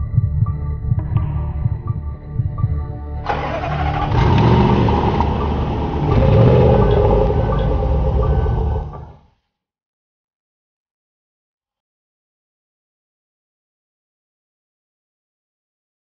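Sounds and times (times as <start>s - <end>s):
car engine accelerating hard: 3.3s - 9.2s.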